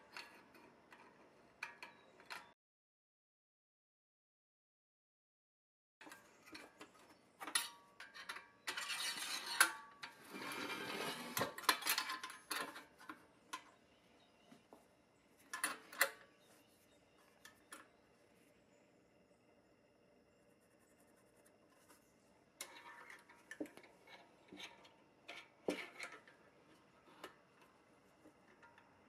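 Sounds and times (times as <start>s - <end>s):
steel rod scraping through metal holes: 7.6s - 12.8s.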